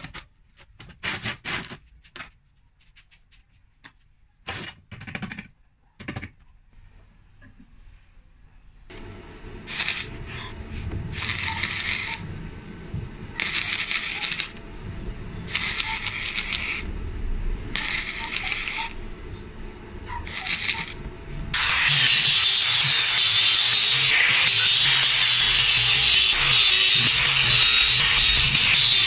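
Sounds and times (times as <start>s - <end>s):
mig welder welding: 8.9s - 10.5s, 11.1s - 12.3s, 13.3s - 14.6s, 15.4s - 16.9s, 17.7s - 19.0s, 20.2s - 29.0s
angle grinder grinding steel: 9.7s - 10.2s, 11.2s - 12.2s, 13.4s - 14.6s, 15.5s - 16.9s, 17.8s - 19.0s, 20.2s - 29.0s.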